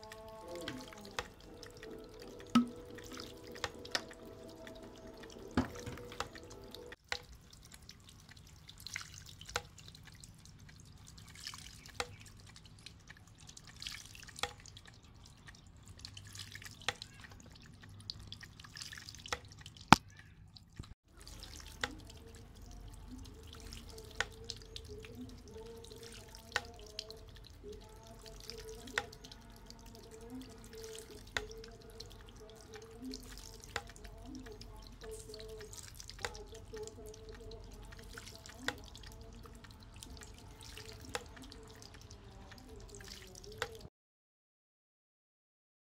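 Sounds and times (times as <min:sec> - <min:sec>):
water trickling into pebbles: 0:00.0 - 0:43.9
bamboo tube knocking: 0:02.5 - 0:03.1.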